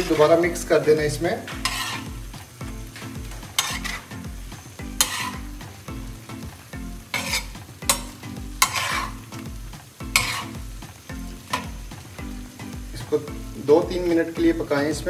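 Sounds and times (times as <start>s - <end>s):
metal spatula scraping griddle: 0.0s - 5.8s, 7.0s - 9.3s, 10.1s - 10.7s
chicken sizzling: 0.0s - 15.0s.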